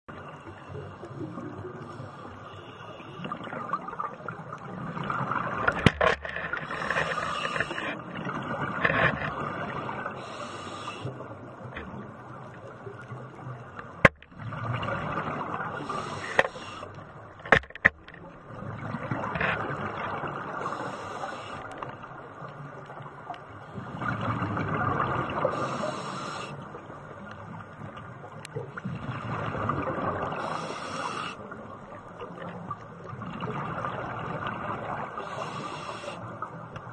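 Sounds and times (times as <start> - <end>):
steady underwater hiss: 0.1 - 17.5, 18.5 - 36.9
diver breathing through regulator: 6.4 - 8.0, 9.9 - 11.2, 15.8 - 17.0, 20.6 - 21.8, 25.5 - 26.6, 30.4 - 31.5, 35.2 - 36.4.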